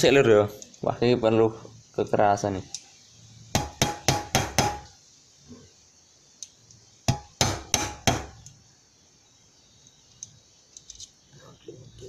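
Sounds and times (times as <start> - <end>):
hammer striking metal punch: 3.6 - 4.9, 7.1 - 8.4.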